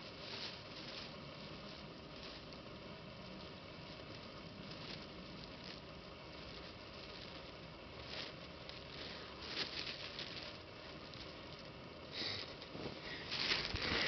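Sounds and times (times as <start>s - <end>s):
fabric fluttering through air: 12.7s - 14.0s.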